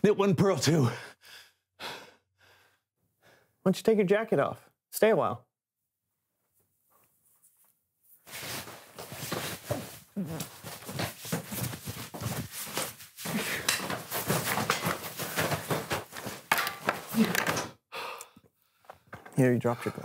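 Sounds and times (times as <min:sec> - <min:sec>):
cloth rustling: 0:06.5 - 0:17.4
man grunting and straining: 0:17.1 - 0:17.7.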